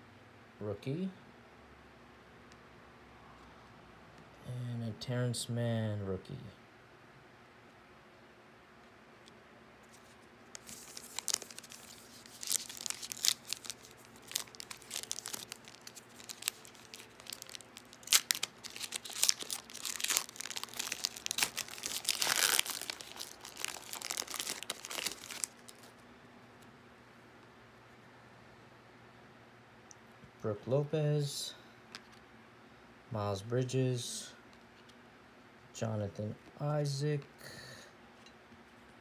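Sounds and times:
foil wrapper crinkling: 9.9 - 26.0
sharp wrapper rips: 10.6 - 25.9.

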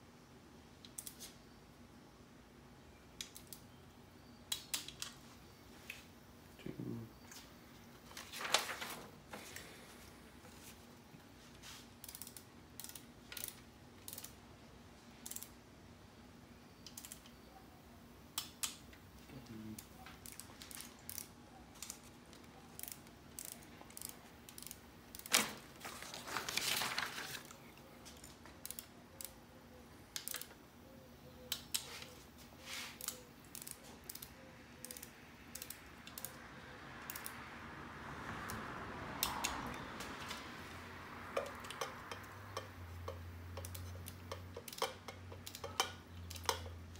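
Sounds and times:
ratchet pawl clicks: 12.0 - 14.4, 15.2 - 15.5, 22.8 - 25.3, 28.6 - 29.4, 33.0 - 36.4, 37.0 - 37.4, 41.4 - 46.7
torque wrench click: 12.0 - 14.4.

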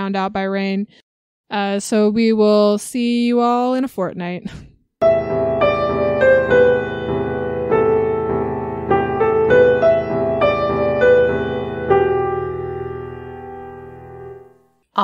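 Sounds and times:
piano melody over held chords: 5.0 - 14.7.

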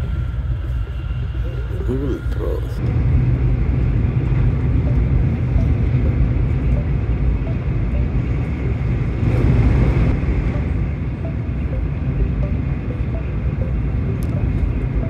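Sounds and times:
train rumble inside carriage: 0.0 - 15.0.

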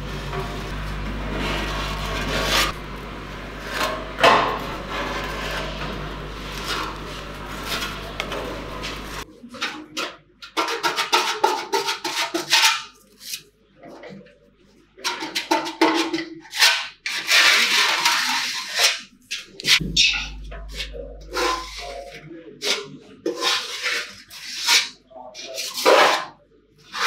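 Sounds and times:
low steady hum: 0.0 - 9.4, 19.2 - 22.6.

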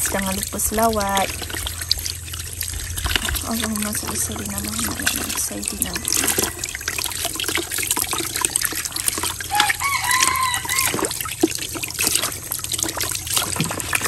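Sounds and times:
fish rinsed by hand splashing: 0.0 - 14.0
water pouring from a hose: 0.0 - 14.0
rooster crowing: 9.5 - 11.2.

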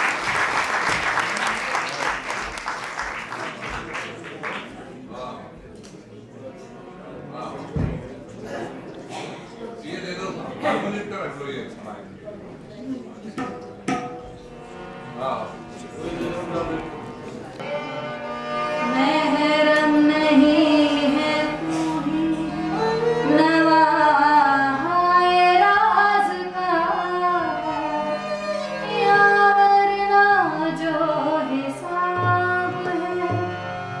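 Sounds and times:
harmonium: 14.1 - 34.0
bowed sarangi: 14.6 - 34.0
woman singing: 18.8 - 33.6.

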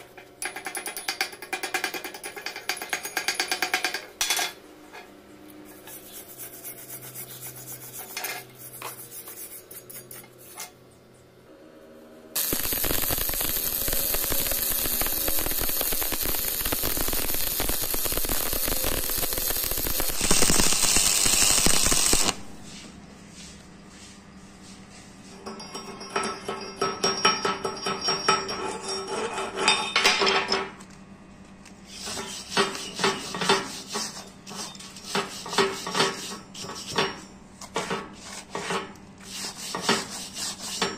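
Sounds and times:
arc welding crackle: 12.4 - 22.6.

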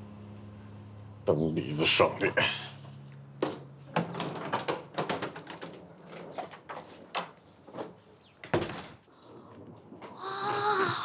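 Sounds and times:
wheeled suitcase rolling: 3.8 - 11.0.

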